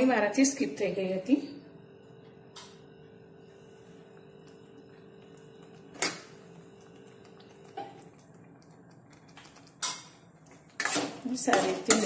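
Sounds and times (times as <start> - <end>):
faint steady hum: 0.0 - 12.0
steel spoon clinking on pan: 10.8 - 12.0.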